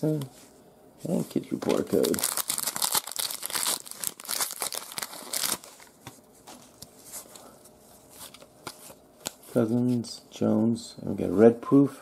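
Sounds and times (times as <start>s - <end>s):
plastic wrapper crinkling and tearing: 1.6s - 6.0s.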